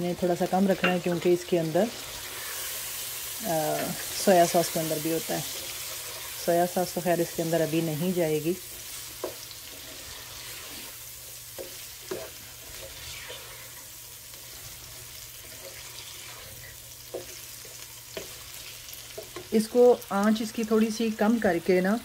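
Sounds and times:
chicken sizzling in oil: 0:00.0 - 0:22.0.

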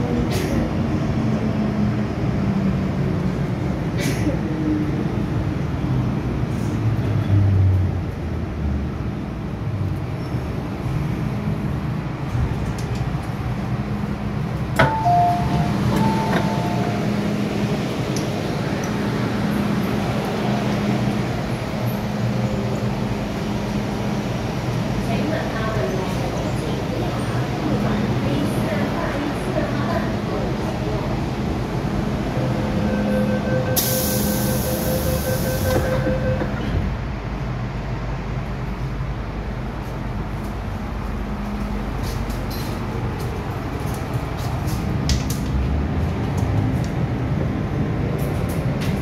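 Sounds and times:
train humming at platform: 0:00.0 - 0:49.0
sliding doors clacking open: 0:14.8 - 0:17.0
two-note falling door chime: 0:14.8 - 0:17.0
sharp air hiss: 0:33.8 - 0:35.0.

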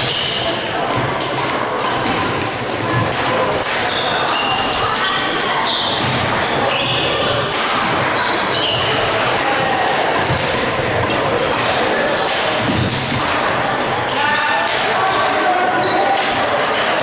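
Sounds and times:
voices: 0:00.0 - 0:17.0
racket striking shuttlecock: 0:02.9 - 0:04.8, 0:10.2 - 0:13.8
shoes squeaking on court: 0:03.7 - 0:13.8, 0:15.1 - 0:17.0.

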